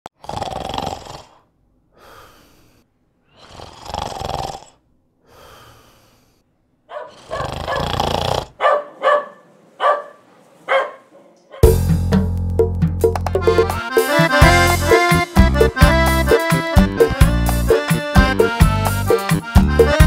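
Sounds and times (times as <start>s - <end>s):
person snoring loudly: 0.1s - 2.4s, 3.3s - 4.8s, 7.1s - 8.6s
short snorts: 0.1s - 6.4s, 7.0s - 8.6s.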